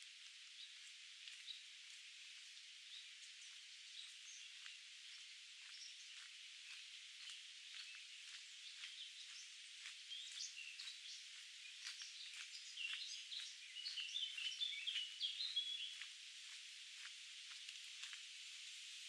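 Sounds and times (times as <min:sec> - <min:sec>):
steady hiss: 0:00.0 - 0:19.0
songbirds chirping and singing: 0:02.8 - 0:16.1.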